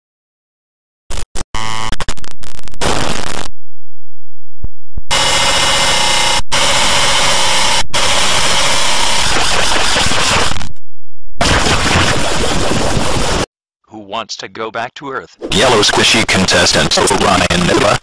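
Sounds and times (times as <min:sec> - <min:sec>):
harsh distorted static noise: 0:01.1 - 0:03.5, 0:05.1 - 0:10.8, 0:11.4 - 0:13.5, 0:15.5 - 0:18.0.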